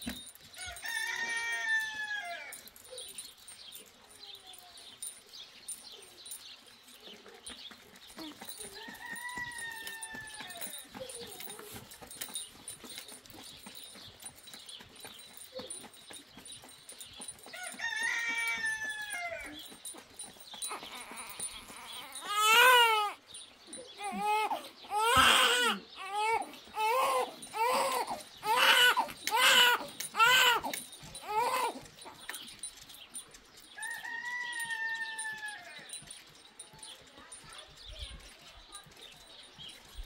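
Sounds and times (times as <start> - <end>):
newborn baby crying: 20.7 - 23.2, 24.0 - 31.8.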